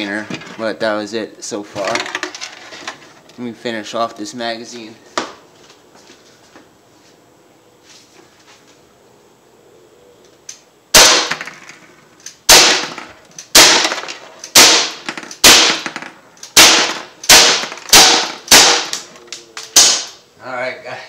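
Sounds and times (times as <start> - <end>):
air pistol shots: 10.9 - 20.2.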